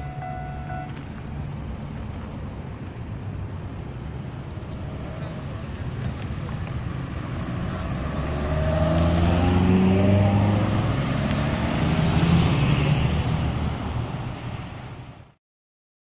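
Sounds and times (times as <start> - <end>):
bus approaching: 0.0 - 15.4
motorcycles and cars driving past: 3.1 - 15.0.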